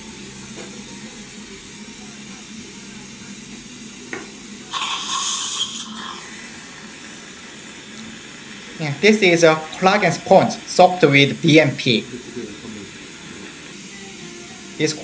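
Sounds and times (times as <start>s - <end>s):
suction slurping liquid: 4.7s - 7.8s.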